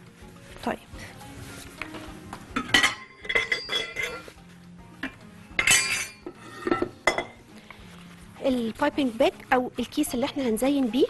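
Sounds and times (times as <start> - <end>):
metal bowl and utensils clinking: 2.5 - 4.3, 5.0 - 7.4.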